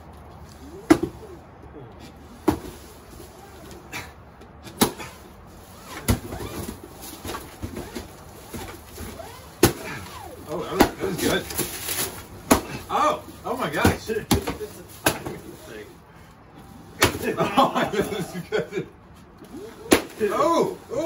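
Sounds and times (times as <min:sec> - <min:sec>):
stick whacking a cardboard pinata: 0:00.8 - 0:01.3, 0:04.7 - 0:05.2, 0:05.9 - 0:12.9, 0:13.6 - 0:15.7, 0:17.0 - 0:17.4, 0:19.8 - 0:20.8.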